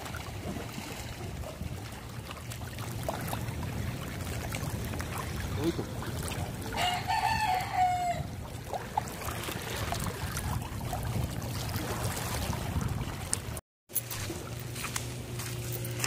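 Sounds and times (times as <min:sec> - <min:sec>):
steady low rumble: 0:00.1 - 0:06.8
rooster crowing: 0:06.8 - 0:08.3.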